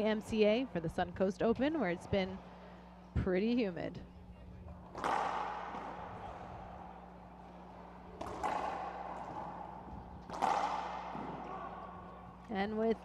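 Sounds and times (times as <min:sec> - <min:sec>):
racquetball cracks echoing: 0:04.8 - 0:12.5.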